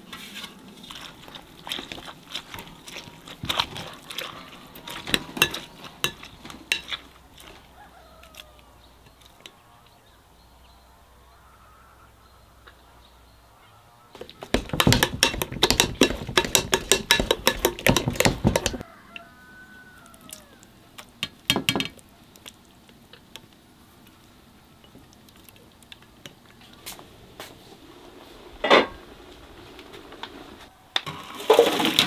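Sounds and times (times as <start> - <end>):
utensils knocking and clattering: 14.4 - 18.8.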